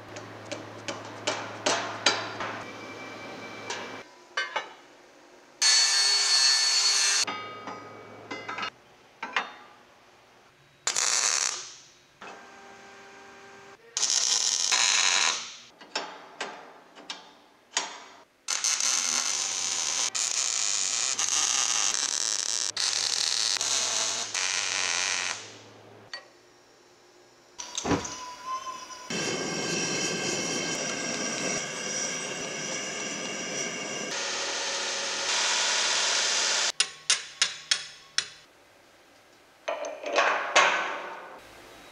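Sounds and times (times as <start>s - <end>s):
angle grinder grinding steel: 28.1s - 36.7s.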